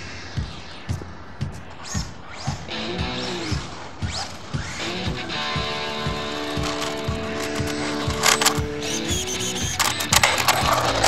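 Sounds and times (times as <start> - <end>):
steady drum beat: 0.0 - 11.0
guitar: 2.5 - 11.0.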